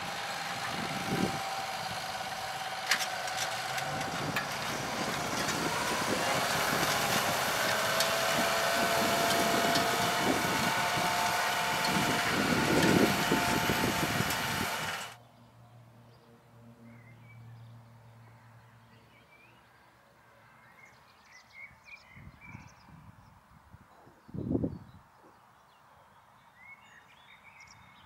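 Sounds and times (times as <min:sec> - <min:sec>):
distant tractor hum: 0:00.0 - 0:15.2
steady whine: 0:00.0 - 0:15.2
tractor diesel engine under load: 0:00.0 - 0:15.2.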